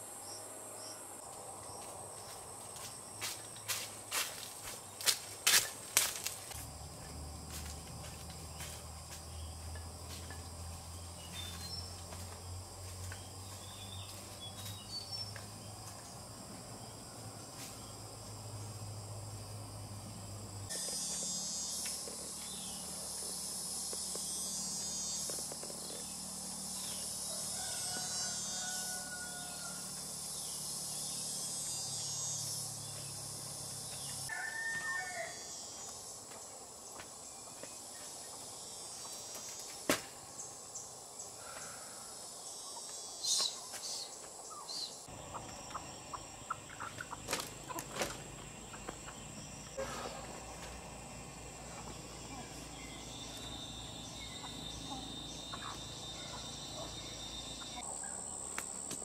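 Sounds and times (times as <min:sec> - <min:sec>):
insects shrilling: 0:20.6 - 0:35.8
rooster crowing: 0:27.2 - 0:30.0, 0:34.2 - 0:35.6.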